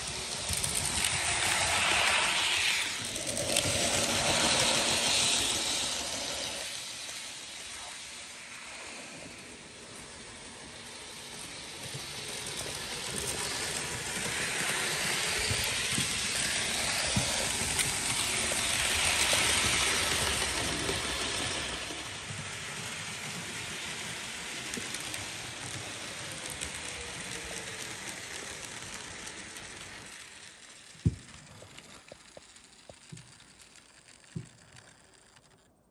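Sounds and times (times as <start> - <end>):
model train rolling on track: 0.0 - 35.9.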